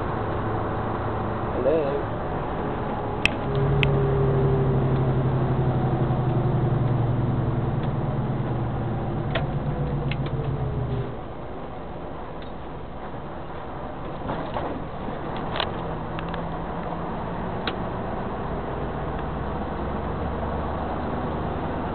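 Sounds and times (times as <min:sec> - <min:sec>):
heavy vehicle engine: 0:00.0 - 0:21.9.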